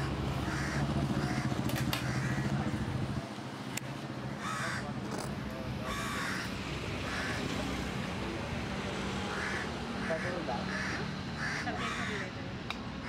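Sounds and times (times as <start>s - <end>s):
crow cawing: 0.0s - 2.6s, 4.3s - 4.9s, 5.8s - 7.4s, 9.3s - 12.4s.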